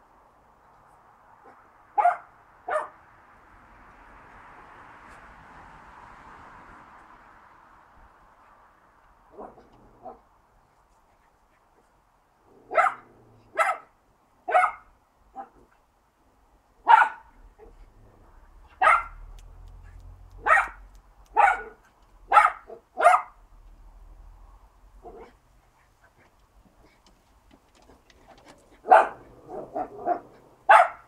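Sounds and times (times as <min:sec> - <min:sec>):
small dogs barking: 0:01.4 - 0:03.0, 0:09.3 - 0:10.3, 0:12.6 - 0:15.7, 0:16.8 - 0:17.9, 0:18.6 - 0:23.4, 0:25.0 - 0:26.2, 0:28.7 - 0:31.0.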